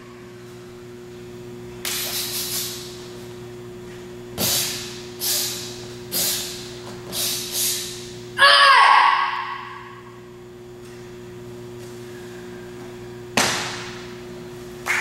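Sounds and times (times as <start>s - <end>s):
hissing bursts of forced breath: 2.0s - 2.9s, 4.4s - 7.9s.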